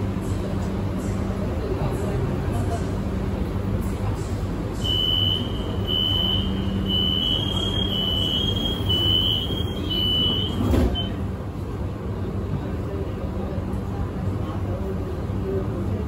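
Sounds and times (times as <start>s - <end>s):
low train hum: 0.0s - 16.0s
high electronic warning beeps: 4.8s - 11.2s
doors sliding shut: 8.6s - 11.2s.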